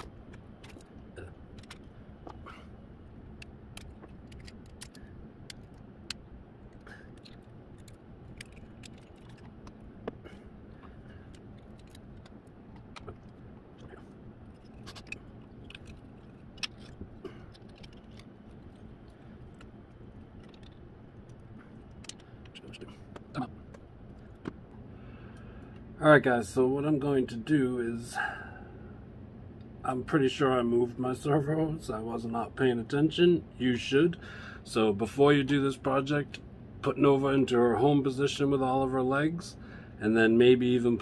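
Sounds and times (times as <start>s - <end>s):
low background hum: 0.0s - 41.0s
small screws and tools clinking: 14.4s - 19.6s.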